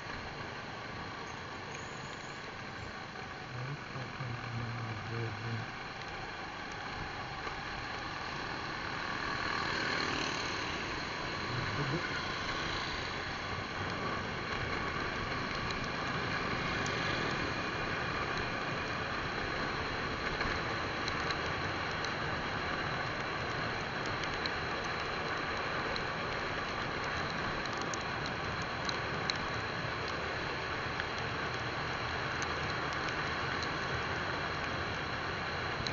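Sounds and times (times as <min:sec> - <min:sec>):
wind and road noise: 0:00.0 - 0:35.9
motorcycle engine: 0:00.9 - 0:28.3.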